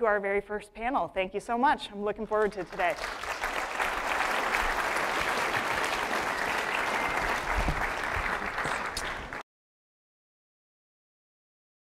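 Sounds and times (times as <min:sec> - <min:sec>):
audience applauding: 0:02.6 - 0:09.4.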